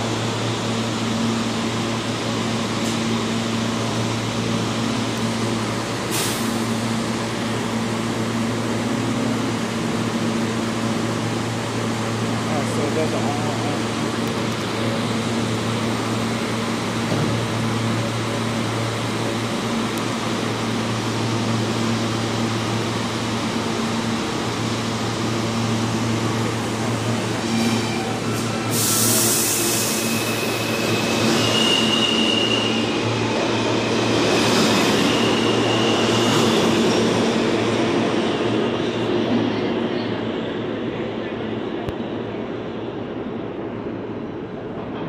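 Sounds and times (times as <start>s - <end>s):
subway train equipment hum: 0.0s - 45.0s
train pulling out rumbling: 0.0s - 45.0s
air hiss: 28.5s - 30.6s.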